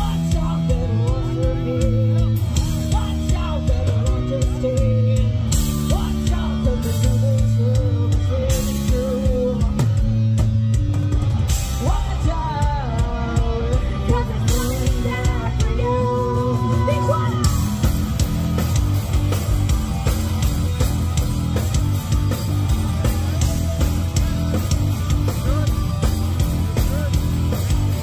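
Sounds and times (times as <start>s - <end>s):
person singing: 0.0s - 10.1s, 11.7s - 17.7s
rock band playing live: 0.0s - 28.0s.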